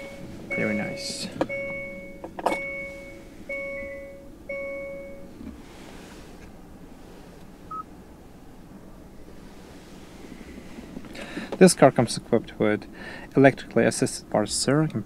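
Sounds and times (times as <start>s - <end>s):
dashboard chime: 0.0s - 5.3s
short faint beep: 0.0s - 5.3s.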